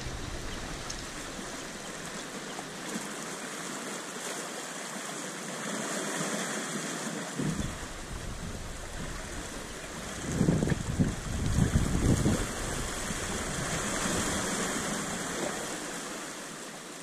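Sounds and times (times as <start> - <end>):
sea water washing against rocks: 0.0 - 17.0.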